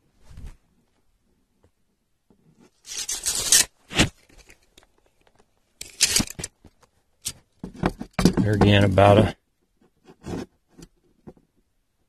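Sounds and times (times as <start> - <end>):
tape measure scraping cardboard: 2.6 - 4.2, 10.0 - 10.6.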